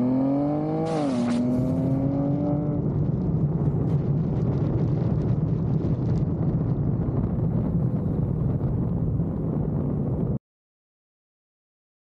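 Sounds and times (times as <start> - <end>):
car engine accelerating: 0.0 - 4.6
wind and road noise: 0.0 - 10.4.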